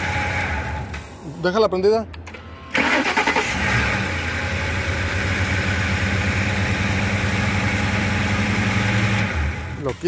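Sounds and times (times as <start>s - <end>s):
car engine idling: 3.5s - 10.0s.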